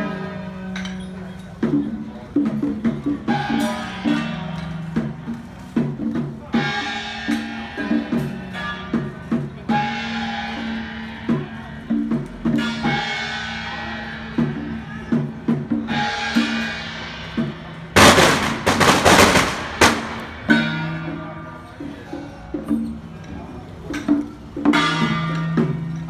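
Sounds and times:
drum beats: 1.4s - 26.0s
loud crashing burst: 18.0s - 20.7s.

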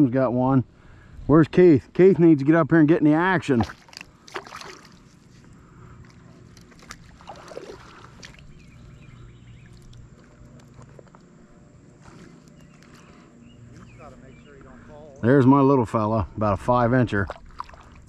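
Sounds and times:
faint water sounds: 0.0s - 18.0s
fish splashing: 3.5s - 5.3s, 6.0s - 8.7s, 17.2s - 18.0s.

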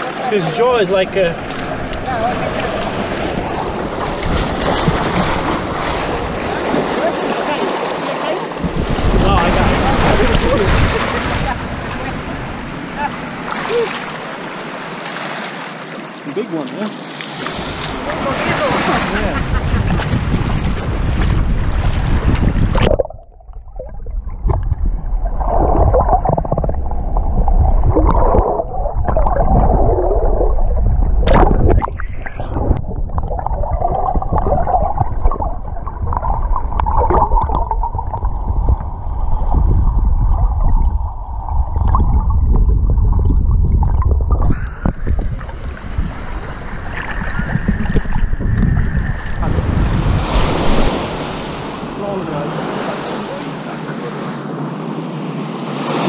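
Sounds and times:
muffled underwater sloshing: 0.0s - 56.0s
surf: 0.0s - 56.0s
wind on microphone: 8.5s - 13.2s, 17.6s - 52.0s.

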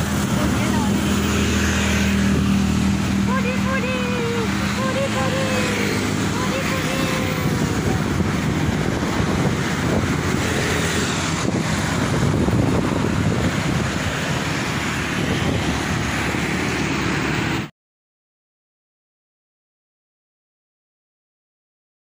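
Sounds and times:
wind buffeting microphone: 0.0s - 17.5s
road traffic passing: 0.0s - 17.7s.

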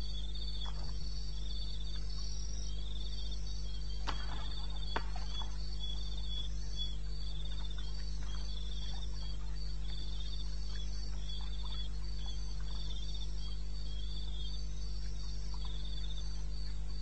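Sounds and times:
crickets chirping: 0.0s - 17.0s
steady low hum: 0.0s - 17.0s.

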